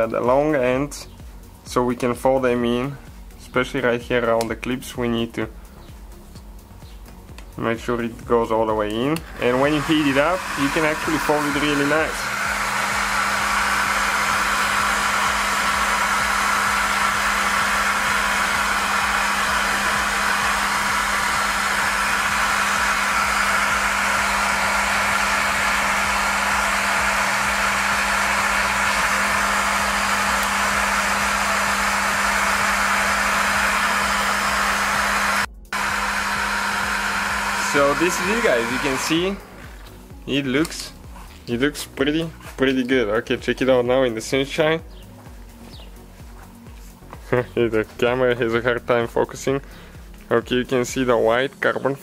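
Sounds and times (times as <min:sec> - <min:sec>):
hair dryer running: 0:08.8 - 0:49.0.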